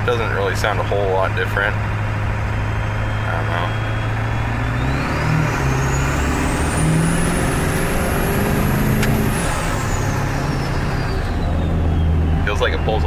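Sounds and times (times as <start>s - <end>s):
diesel engine accelerating: 0.0s - 13.0s
turbo whistle: 2.6s - 8.1s.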